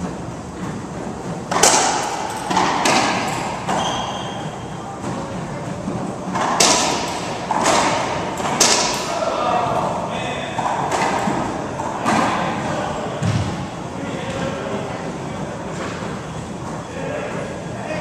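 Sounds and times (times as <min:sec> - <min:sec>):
racquet smacking ball: 0:01.5 - 0:04.1, 0:06.3 - 0:09.2
ball hitting court walls: 0:01.5 - 0:04.4, 0:06.3 - 0:09.2, 0:10.6 - 0:12.5, 0:13.2 - 0:13.7
shoe squeak on hardwood floor: 0:03.7 - 0:04.7.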